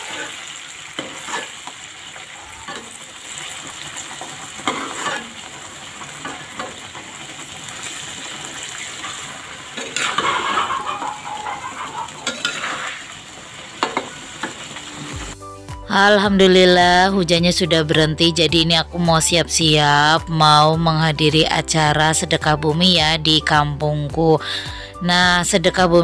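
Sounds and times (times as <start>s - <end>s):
spatula scraping a wok: 0.0s - 7.0s, 8.8s - 13.2s
sauce sizzling in a wok: 0.0s - 15.8s
spatula clinking on pan: 9.8s - 12.7s.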